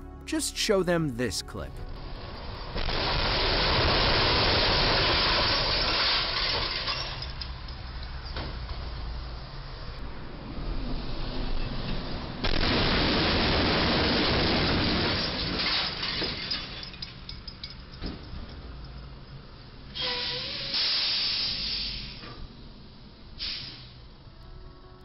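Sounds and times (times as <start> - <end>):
loud crash and scraping: 2.8 - 7.3
falling debris clinking and rattling: 3.0 - 7.9, 14.2 - 19.0
loud burst of hissing: 20.2 - 22.2.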